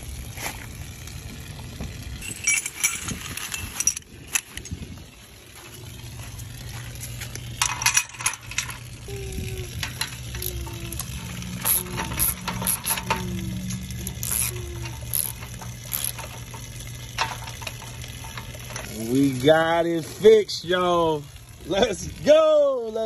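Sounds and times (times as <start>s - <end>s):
steady low hum: 0.0s - 22.9s
metal parts clinking: 2.2s - 4.8s, 7.6s - 9.0s, 9.8s - 19.1s.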